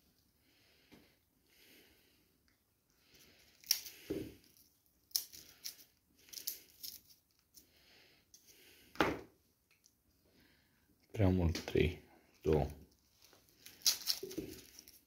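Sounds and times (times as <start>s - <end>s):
papery crackling of garlic skins: 3.1s - 7.7s, 12.4s - 15.0s.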